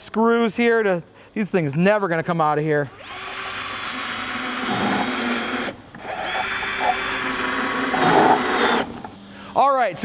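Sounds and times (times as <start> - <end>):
cordless drill whining: 2.9 - 9.0.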